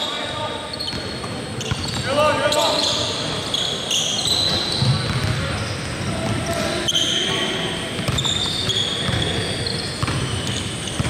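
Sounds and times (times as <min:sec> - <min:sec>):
sneakers squeaking on court floor: 0:00.0 - 0:11.0
basketball bouncing: 0:04.7 - 0:06.8, 0:08.0 - 0:09.3, 0:10.0 - 0:11.0.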